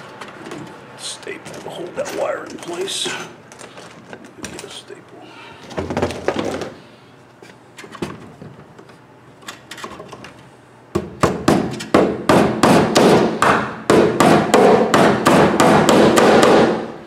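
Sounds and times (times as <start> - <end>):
hammer blows on staple: 11.2 - 16.9.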